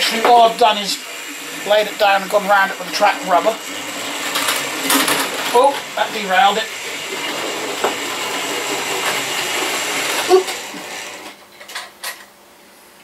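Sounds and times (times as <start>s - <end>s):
model train motor whirring: 3.8s - 11.4s.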